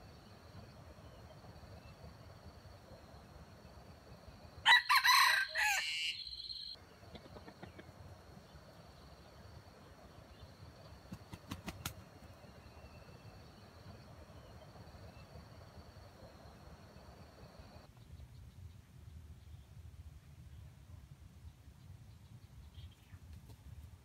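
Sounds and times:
rooster crowing: 4.6s - 6.8s.

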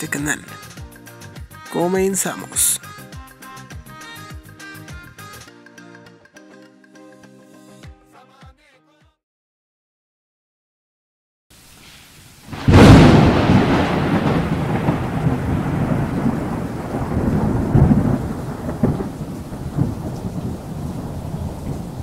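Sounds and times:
loud crash: 12.6s - 15.0s.

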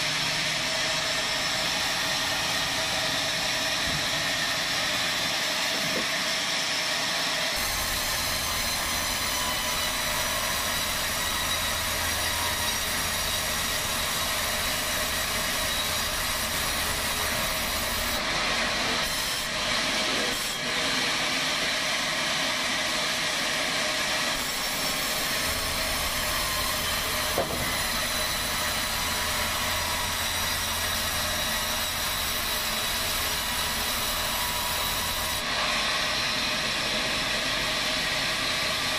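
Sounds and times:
band saw cutting wood: 0.0s - 38.9s.

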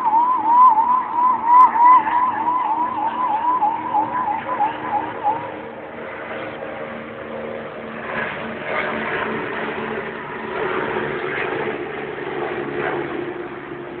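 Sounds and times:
helicopter engine whine: 0.0s - 14.0s
helicopter rotor rushing noise: 0.0s - 14.0s.

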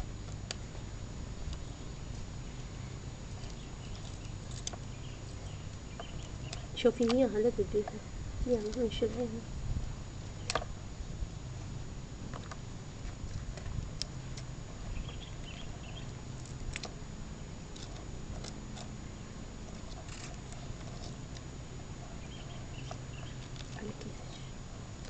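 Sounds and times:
low background rumble: 0.0s - 25.0s
faint clicks and scratches: 1.4s - 9.3s, 17.7s - 19.0s, 19.6s - 25.0s.

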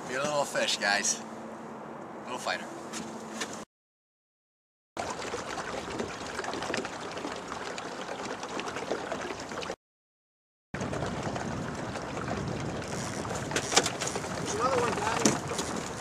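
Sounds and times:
water splashing and gurgling: 5.0s - 9.8s, 10.8s - 16.0s.

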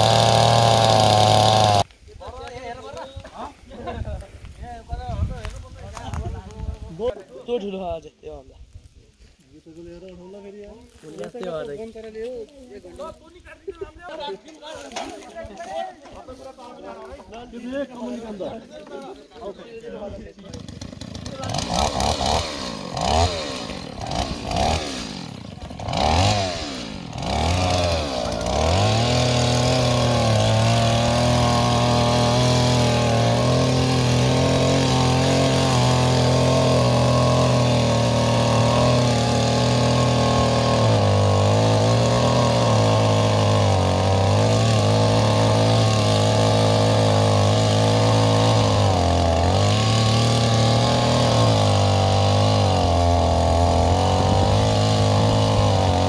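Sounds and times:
chainsaw revving and cutting: 0.0s - 2.0s, 20.3s - 56.0s.

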